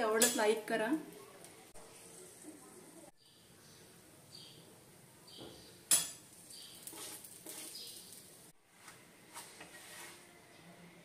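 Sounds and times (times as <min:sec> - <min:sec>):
spoon clinking on metal dishes: 0:00.2 - 0:00.5, 0:05.9 - 0:07.9.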